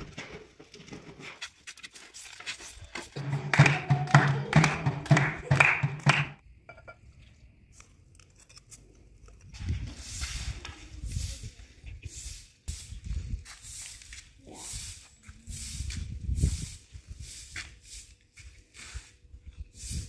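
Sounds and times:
broom sweeping stone floor: 0.4s - 4.6s, 9.6s - 20.0s.

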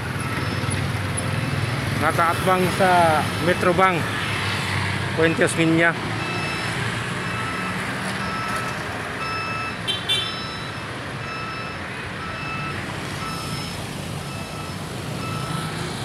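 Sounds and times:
street traffic and engine rumble: 0.0s - 16.0s
reversing alarm beeping: 0.2s - 0.8s, 3.4s - 4.0s, 6.2s - 15.7s.

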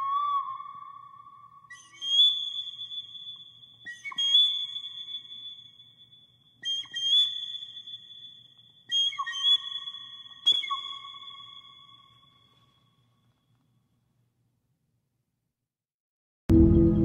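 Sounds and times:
flute music: 16.5s - 17.0s.

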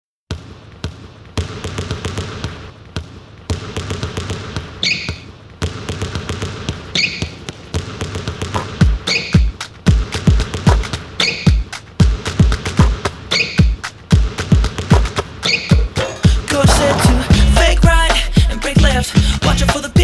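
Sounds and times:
basketballs bouncing on hardwood: 0.3s - 17.8s
sneaker squeaks: 0.4s - 9.7s, 10.8s - 11.8s, 12.8s - 13.9s, 15.0s - 16.2s.

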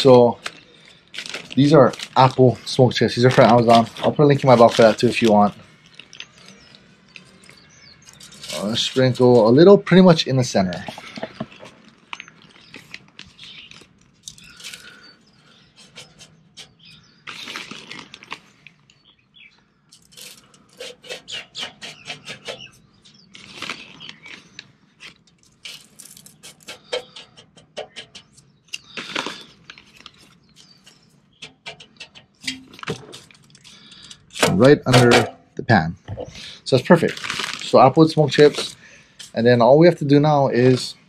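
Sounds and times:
rustling handfuls of chips: 0.0s - 9.6s, 10.4s - 15.6s, 17.2s - 18.9s, 23.3s - 26.9s, 28.8s - 30.9s, 36.7s - 38.9s
wood chips pattering on foil: 0.0s - 15.1s, 17.2s - 18.7s, 22.2s - 35.2s, 36.7s - 39.4s.

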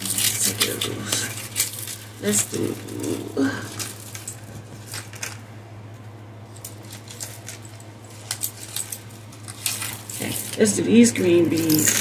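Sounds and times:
steady low hum: 0.0s - 12.0s
plastic beads clicking and rattling: 6.6s - 12.0s.

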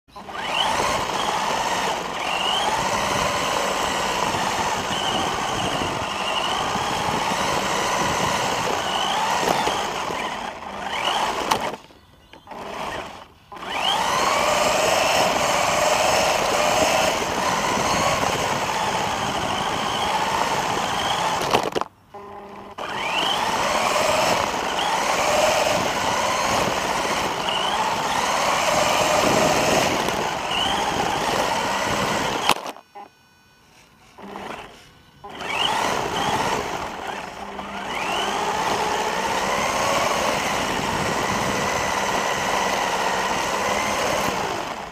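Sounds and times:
rc car motor whining: 0.1s - 44.9s.

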